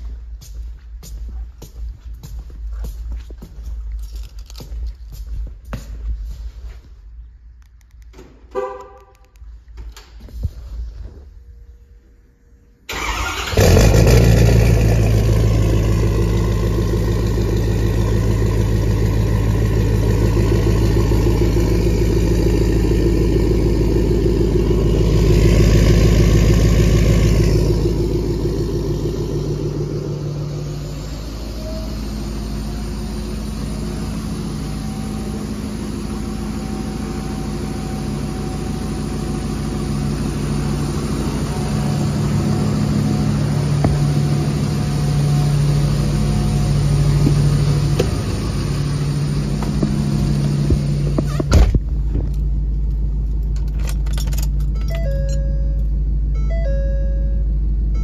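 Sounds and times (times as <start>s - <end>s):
diesel engine idling: 11.9s - 58.0s
diesel engine cranking: 12.9s - 56.8s.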